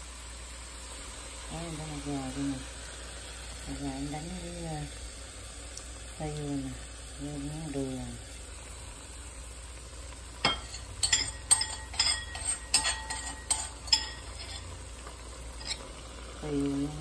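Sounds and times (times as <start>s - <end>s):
utensil scraping a wok: 10.4s - 16.3s.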